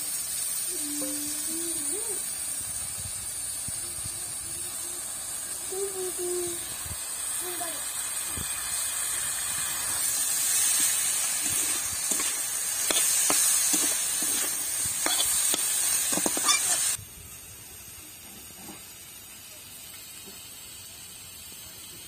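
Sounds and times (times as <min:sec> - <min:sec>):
prawns sizzling in hot oil: 0:00.0 - 0:22.0
metal spatula scraping pan: 0:10.7 - 0:17.0.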